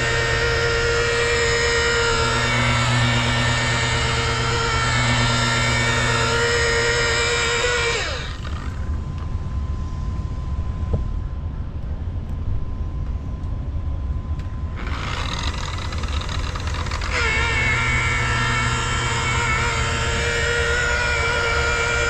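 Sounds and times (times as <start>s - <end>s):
rotary polisher motor whine: 0.0s - 9.3s, 14.8s - 22.0s.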